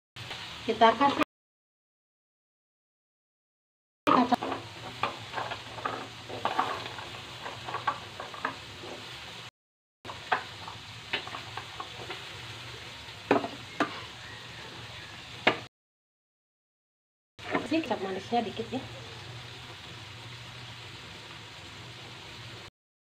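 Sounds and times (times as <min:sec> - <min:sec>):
sauce sizzling in a wok: 0:00.2 - 0:01.2, 0:04.1 - 0:09.5, 0:10.1 - 0:15.7, 0:17.4 - 0:22.7.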